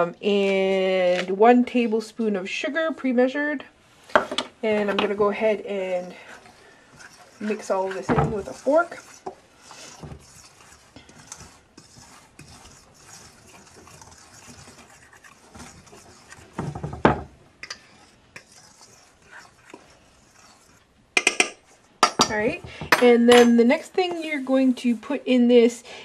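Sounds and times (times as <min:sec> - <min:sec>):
fork stirring flour in metal bowl: 0:04.6 - 0:25.2.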